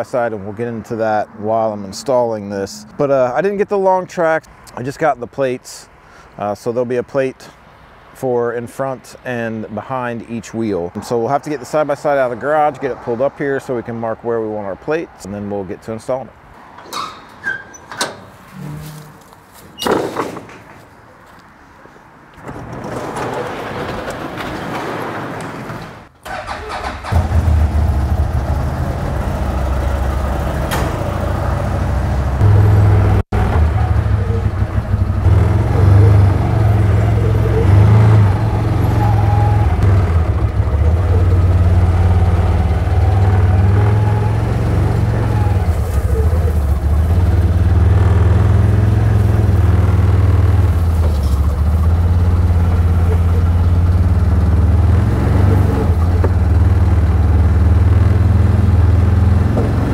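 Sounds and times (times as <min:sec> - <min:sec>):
engine running: 0:26.3 - 0:59.9.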